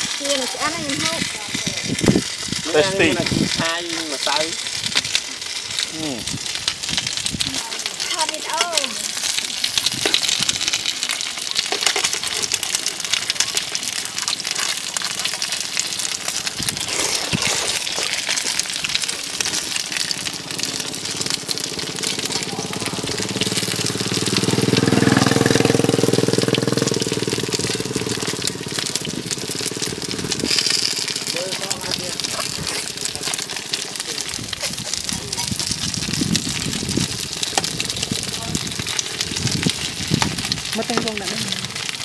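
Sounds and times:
constant crackling noise: 0.0 - 42.0
engine running: 12.5 - 34.1.

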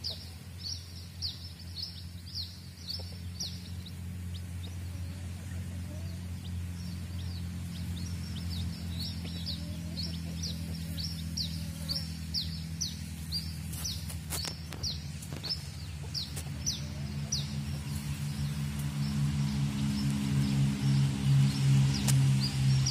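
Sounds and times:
chicks peeping: 0.0 - 22.9
hen clucking softly: 9.2 - 12.0
background music with low drone: 16.4 - 22.9.

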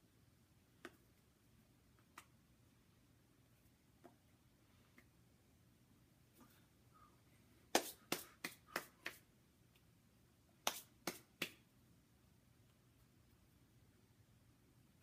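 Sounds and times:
hands slapping together: 7.7 - 9.3, 10.6 - 11.7.

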